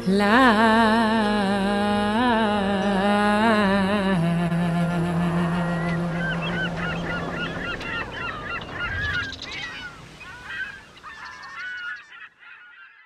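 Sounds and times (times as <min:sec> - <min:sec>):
flock of birds calling: 0:04.4 - 0:13.0.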